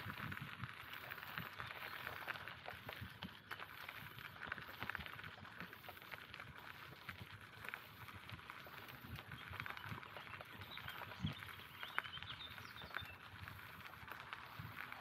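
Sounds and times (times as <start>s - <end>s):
bicycle tyres on forest path: 0.0s - 15.0s.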